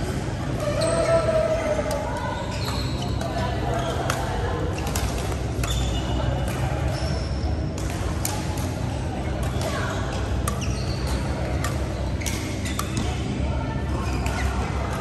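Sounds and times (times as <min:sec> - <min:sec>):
shoes squeaking on court: 0:00.6 - 0:01.7, 0:02.3 - 0:04.1, 0:05.6 - 0:06.2, 0:10.0 - 0:13.1
racket striking shuttlecock: 0:10.3 - 0:13.2.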